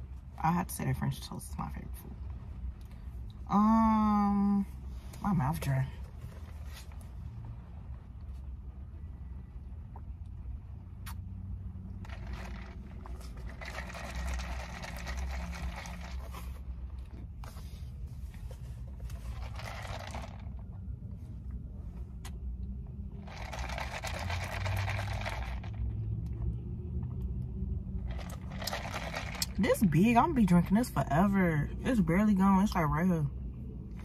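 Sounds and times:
low rumble in a car: 0:00.0 - 0:34.0
slurping through a straw: 0:12.0 - 0:16.7, 0:19.0 - 0:20.4, 0:23.2 - 0:25.8, 0:28.1 - 0:29.8.

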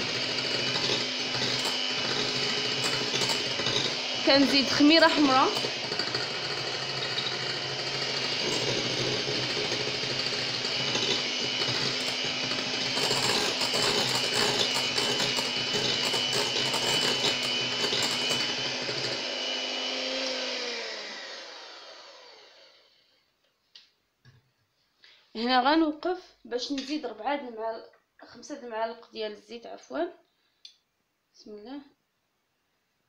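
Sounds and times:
mixer motor winding down: 0:00.0 - 0:23.0
electric hand mixer whirring: 0:00.0 - 0:23.1.

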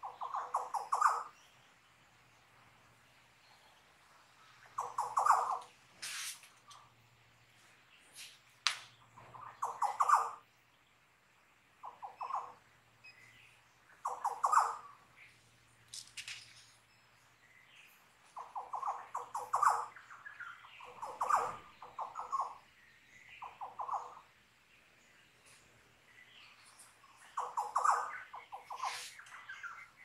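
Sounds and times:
high bird chirps: 0:11.8 - 0:15.0, 0:26.4 - 0:30.0.

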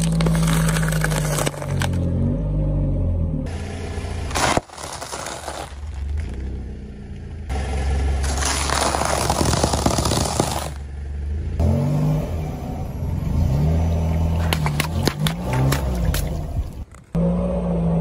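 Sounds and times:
engine and tyre rumble: 0:00.0 - 0:18.0
tyre crunching soft slab: 0:04.3 - 0:06.6, 0:08.2 - 0:10.8.

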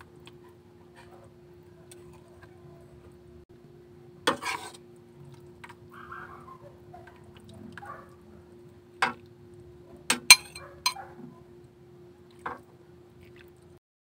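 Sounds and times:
utensil clinking against metal wok: 0:10.1 - 0:11.0.

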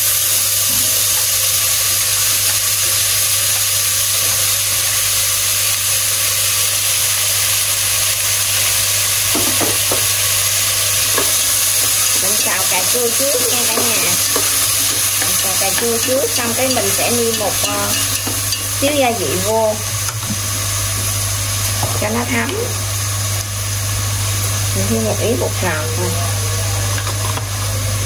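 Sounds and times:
tomatoes sizzling in a pot: 0:00.0 - 0:28.0
chopsticks knocking and scraping: 0:13.3 - 0:18.7.

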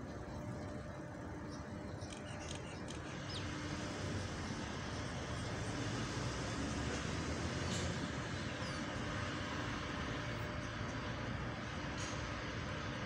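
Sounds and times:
low rumble of city traffic: 0:00.0 - 0:13.0.

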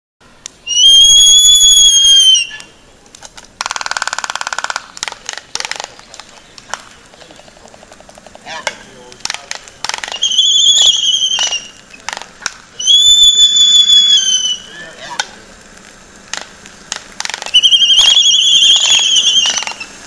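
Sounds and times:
albatross whistling call: 0:00.6 - 0:02.8, 0:09.9 - 0:12.2, 0:12.8 - 0:15.3, 0:17.2 - 0:20.0
albatross bill clattering: 0:02.5 - 0:20.0
sharp bill clicks: 0:03.1 - 0:12.7.

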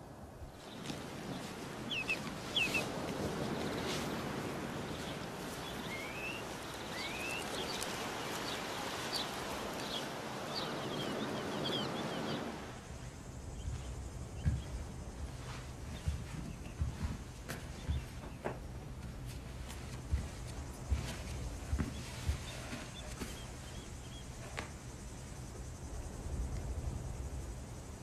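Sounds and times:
outdoor background noise: 0:00.0 - 0:28.0
small birds chirping: 0:00.5 - 0:26.4
soft low thump: 0:13.6 - 0:19.2.

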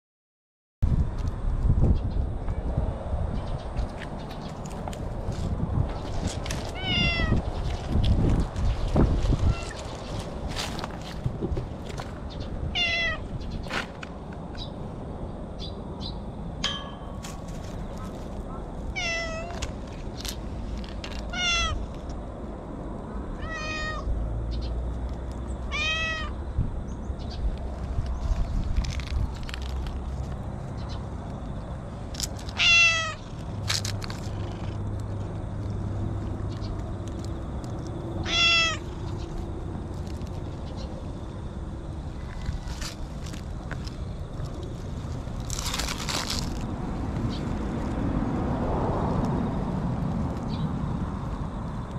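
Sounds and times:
cat meowing: 0:06.7 - 0:07.4, 0:09.4 - 0:09.8, 0:12.7 - 0:13.2, 0:18.9 - 0:19.6, 0:21.3 - 0:21.8, 0:23.4 - 0:24.1, 0:25.7 - 0:26.4, 0:32.6 - 0:33.2, 0:38.2 - 0:38.9.

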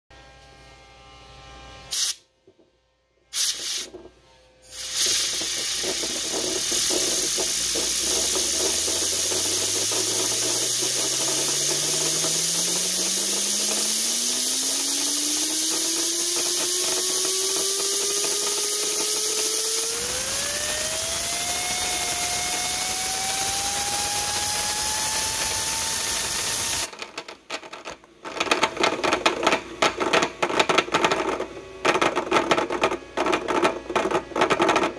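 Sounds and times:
compressed air blasting: 0:01.9 - 0:02.3, 0:03.3 - 0:04.0, 0:04.6 - 0:27.0
spinning gears whining: 0:04.7 - 0:29.6
gears clattering: 0:04.7 - 0:34.9.

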